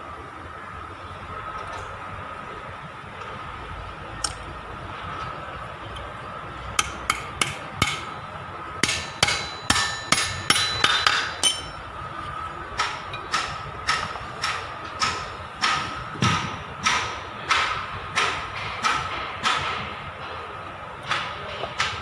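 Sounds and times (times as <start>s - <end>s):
hammer striking metal: 6.8s - 8.2s, 8.8s - 11.9s, 12.8s - 19.8s.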